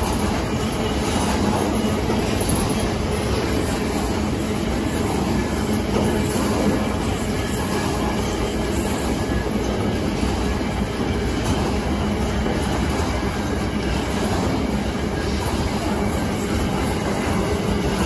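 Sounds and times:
train running on rails: 0:00.0 - 0:18.0.

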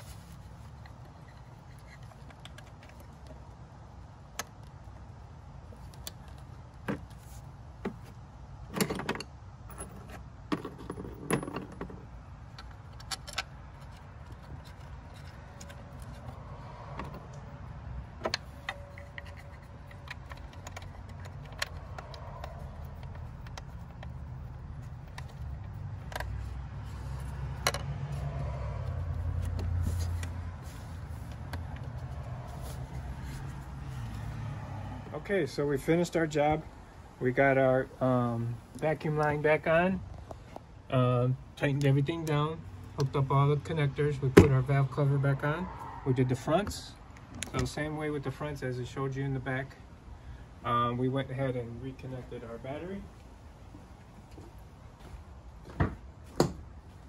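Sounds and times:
muffled camera handling rumble: 0:00.0 - 0:03.6, 0:09.9 - 0:34.3
low steady hum: 0:00.0 - 0:45.5.

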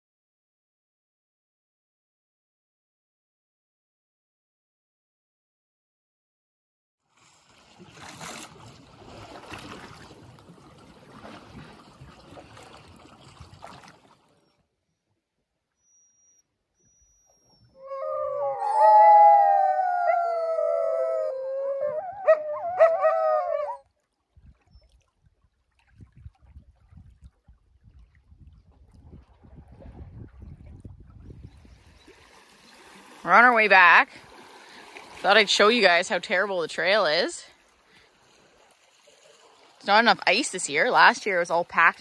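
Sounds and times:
dogs howling together: 0:17.8 - 0:23.8.

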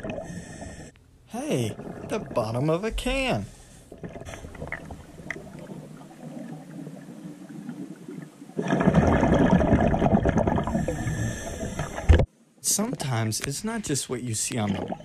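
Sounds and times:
underwater bubbling rush: 0:00.0 - 0:00.9, 0:01.5 - 0:12.3, 0:14.5 - 0:15.0
faint hiss: 0:10.7 - 0:14.8.

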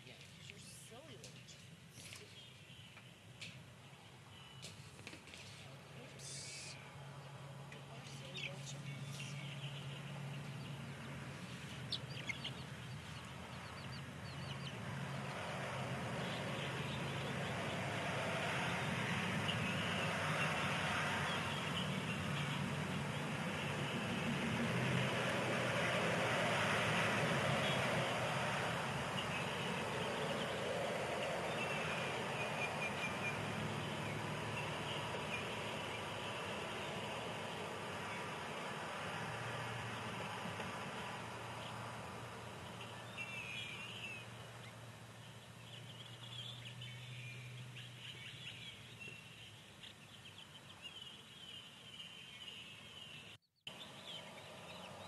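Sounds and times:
baby chicks peeping: 0:07.9 - 0:24.6
chicks peeping: 0:08.1 - 0:14.8.

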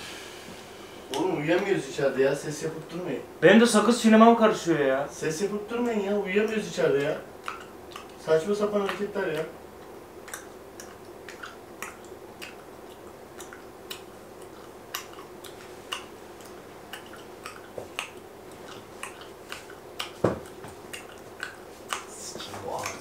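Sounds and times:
chewing gum cracking clicks: 0:05.8 - 0:22.1.

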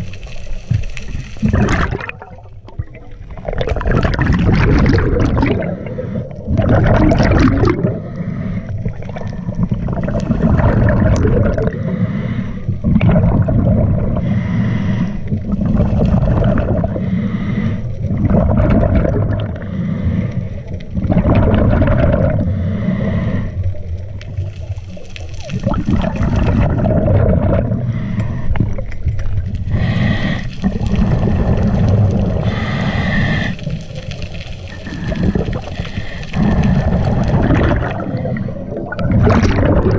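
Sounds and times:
gurgling exhaled bubbles: 0:00.0 - 0:39.9
regulator hissing inhalations: 0:29.6 - 0:30.7, 0:32.4 - 0:33.8.

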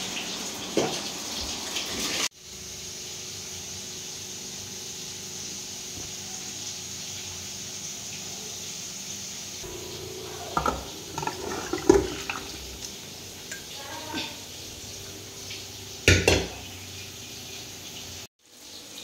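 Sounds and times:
metal pot knocking and scraping: 0:09.6 - 0:12.9.

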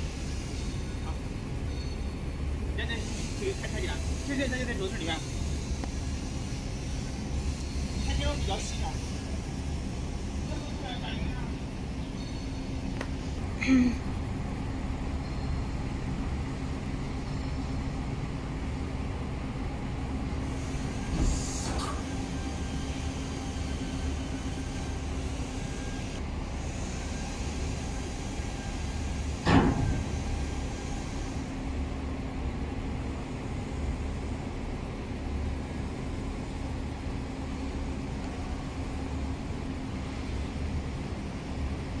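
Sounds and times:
hydraulics raising tailgate: 0:20.4 - 0:26.2, 0:27.0 - 0:31.5
brief hiss: 0:20.5 - 0:22.3.

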